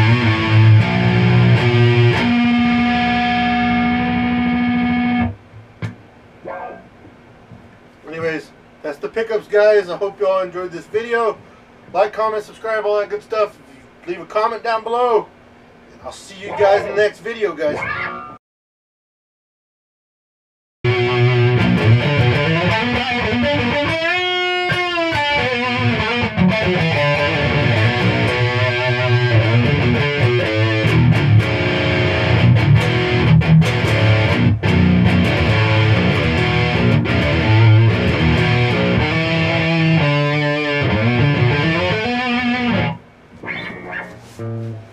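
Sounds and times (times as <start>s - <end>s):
electric guitar through amplifier: 0.0s - 7.2s, 20.9s - 44.9s.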